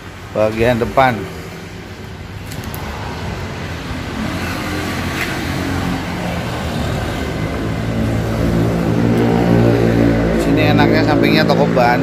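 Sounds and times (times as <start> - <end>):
vehicle engine drone: 0.0 - 12.0.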